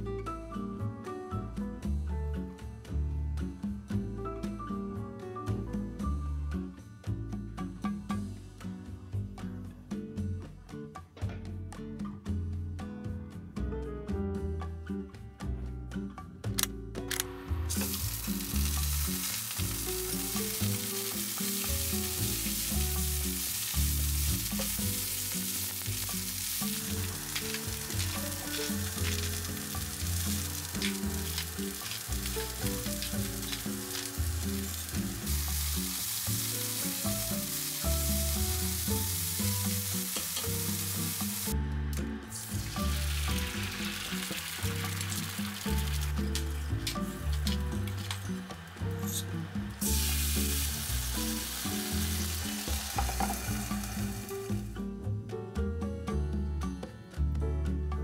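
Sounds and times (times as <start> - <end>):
soft background music: 0.0 - 58.0
spinach sizzling in hot oil: 17.6 - 41.6, 42.3 - 54.8.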